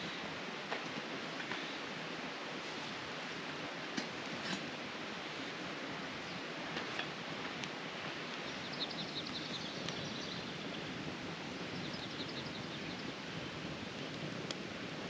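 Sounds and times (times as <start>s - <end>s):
campfire crackling: 0.0s - 15.0s
bird chirping: 8.4s - 10.8s.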